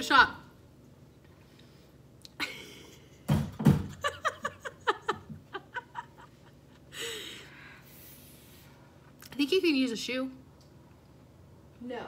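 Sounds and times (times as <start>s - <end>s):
woman giggling: 2.4s - 3.2s, 3.9s - 7.5s
breathy sound: 6.9s - 8.7s.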